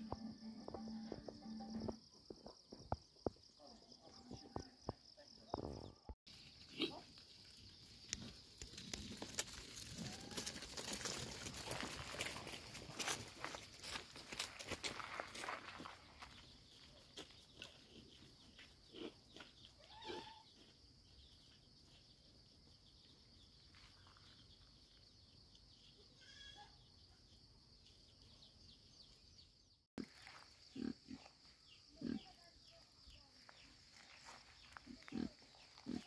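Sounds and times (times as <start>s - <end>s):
faint farm animal calls: 16.1s - 22.3s, 25.8s - 27.3s, 30.0s - 36.0s.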